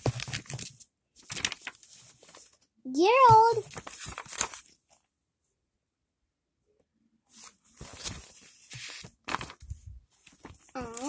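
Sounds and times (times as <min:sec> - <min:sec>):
paper pages rustling: 0:00.0 - 0:05.1, 0:07.3 - 0:11.0.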